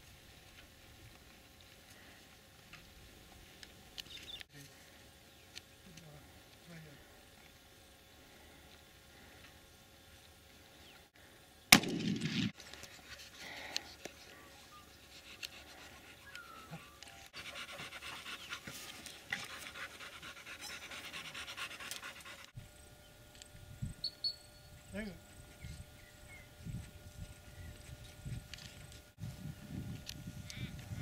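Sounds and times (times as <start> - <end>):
loud sharp bang: 11.7 - 12.5
dog panting: 13.0 - 22.6.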